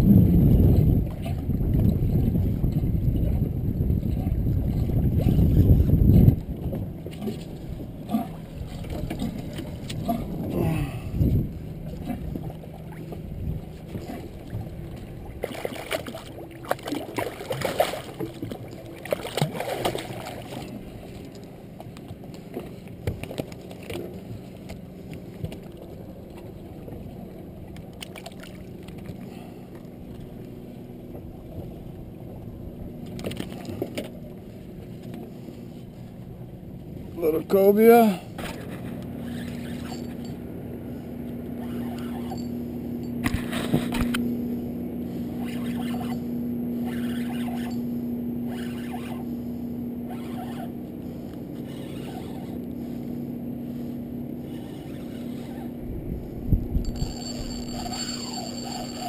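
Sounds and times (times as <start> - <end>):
steady low hum: 0.0 - 59.0
water noise: 0.0 - 59.0
wind: 0.0 - 59.0.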